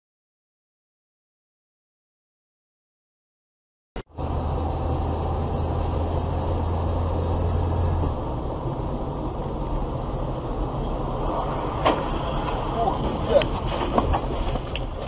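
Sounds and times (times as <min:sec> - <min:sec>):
low drone: 0:04.0 - 0:14.9
car driving road noise: 0:04.0 - 0:15.0.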